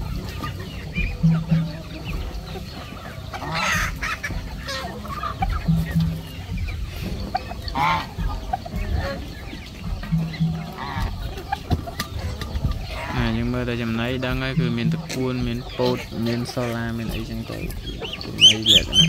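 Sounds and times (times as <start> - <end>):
chickens clucking: 0.0 - 19.0
loud squawking calls: 0.0 - 19.0.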